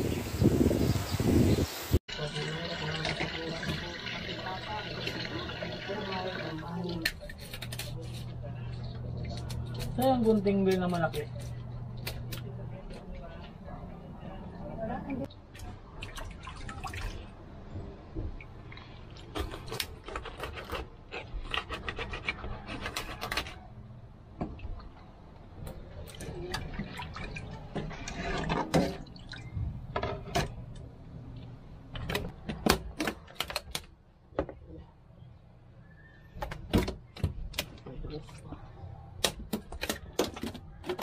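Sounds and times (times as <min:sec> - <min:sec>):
water sloshing and splashing: 0:15.3 - 0:20.1, 0:24.5 - 0:30.4.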